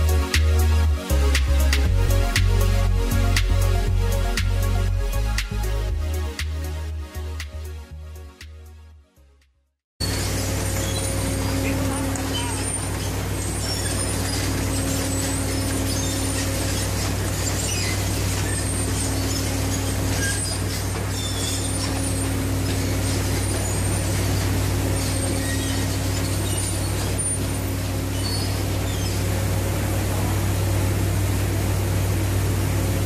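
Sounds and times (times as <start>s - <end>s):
low machinery drone: 0.0s - 9.0s, 10.0s - 33.0s
high squeaks from pipe gear: 10.0s - 29.3s.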